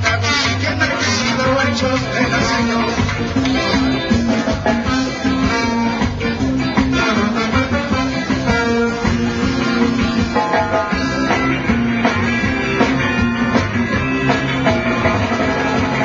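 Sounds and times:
person singing: 0.0s - 6.0s
live reggae band instrumental: 0.0s - 16.0s.

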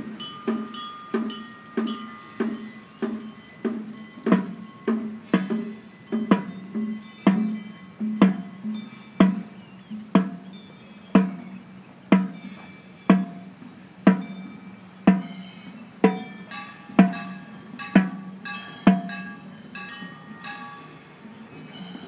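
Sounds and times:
faint high ringing tones: 0.0s - 9.3s
low ringing drum strokes: 0.0s - 10.5s.

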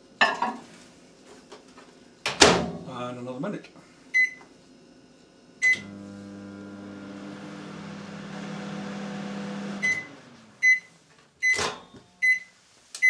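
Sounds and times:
microwave humming with fan: 5.6s - 12.2s
microwave beeping: 5.6s - 12.5s.

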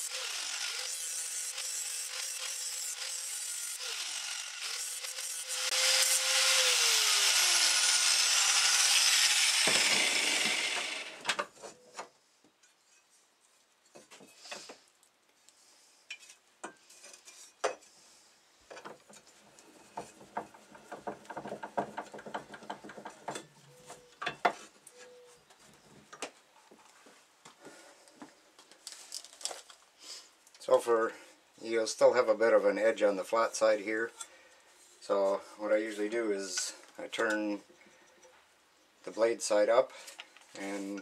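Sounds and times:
angle grinder grinding metal blade: 0.0s - 11.2s.

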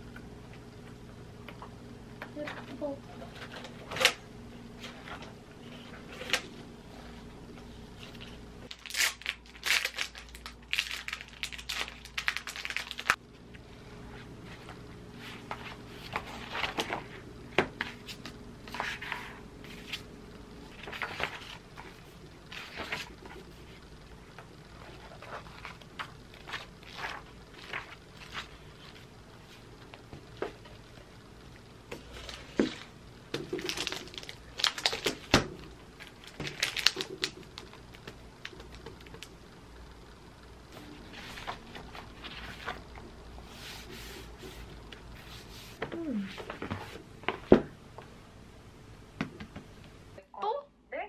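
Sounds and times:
paper pages rustling: 14.4s - 17.2s, 20.7s - 23.6s, 24.8s - 29.7s, 41.0s - 45.8s.

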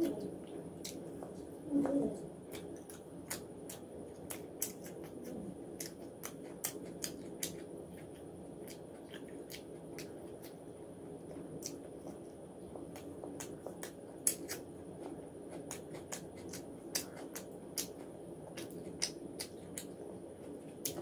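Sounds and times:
mouth clicks and smacks: 0.0s - 1.4s, 2.4s - 10.6s, 11.6s - 12.3s, 12.9s - 14.7s, 15.5s - 20.0s
person chewing food: 0.0s - 21.0s.

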